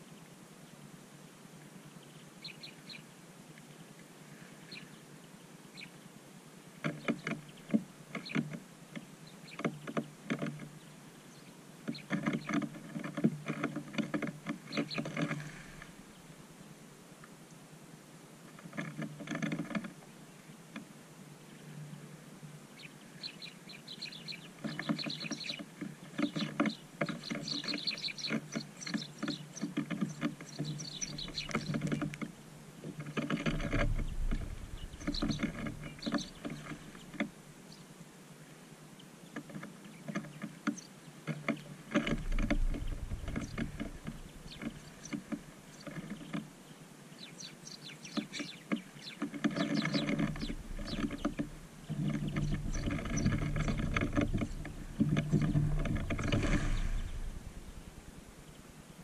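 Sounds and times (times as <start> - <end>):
high bird chirps: 30.5 - 31.8, 33.7 - 36.7, 49.7 - 57.6
fluttering wingbeats: 33.0 - 37.2, 42.0 - 45.3, 49.7 - 58.1
low bump: 33.4 - 37.1, 42.1 - 45.0, 50.3 - 58.6.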